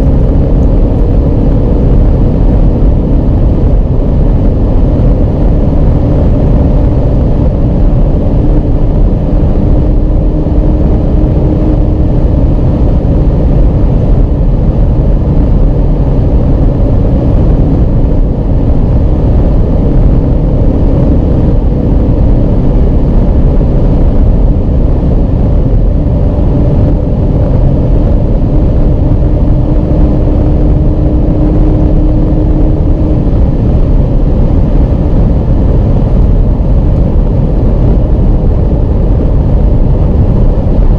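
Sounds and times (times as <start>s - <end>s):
car engine drone: 0.0s - 40.9s
wind rush in car cabin: 0.0s - 40.9s.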